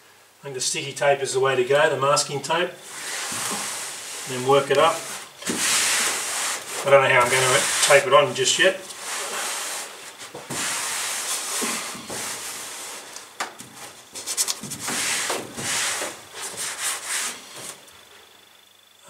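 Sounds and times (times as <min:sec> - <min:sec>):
hands rubbing over carpet: 0:02.8 - 0:17.8.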